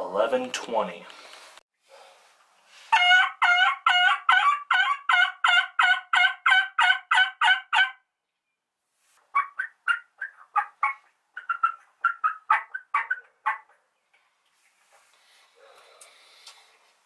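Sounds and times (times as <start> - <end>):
turkey call hen yelps: 2.9 - 8.0, 9.3 - 13.8
short choppy turkey call notes: 9.3 - 13.7.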